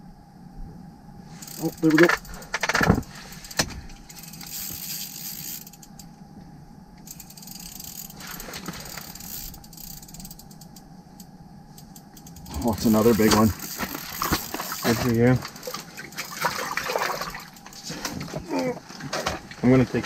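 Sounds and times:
fishing reel whirring and clicking: 0:01.4 - 0:06.2, 0:07.0 - 0:18.0.

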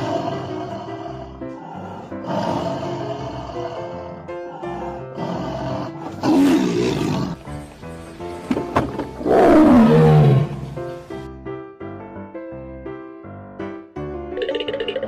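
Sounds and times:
tiger roaring: 0:00.0 - 0:07.4, 0:09.2 - 0:10.8.

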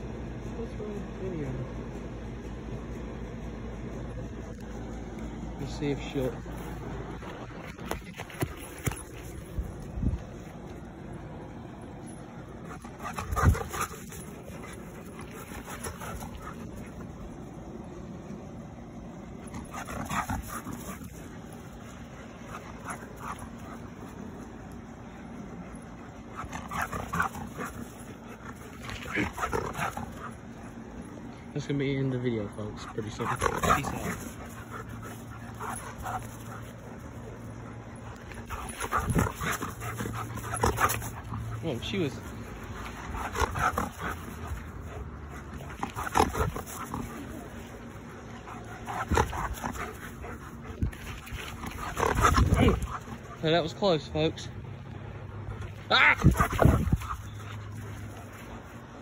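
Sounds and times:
outdoor background noise: 0:00.0 - 0:59.0
dog panting: 0:02.4 - 0:59.0
dog vocalizing: 0:26.2 - 0:30.8, 0:32.8 - 0:53.4, 0:55.8 - 0:58.3.

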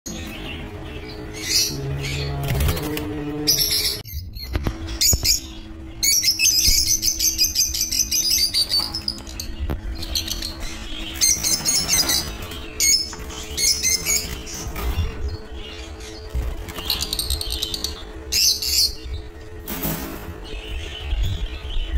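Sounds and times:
lovebirds chirping and squawking: 0:00.1 - 0:21.9.

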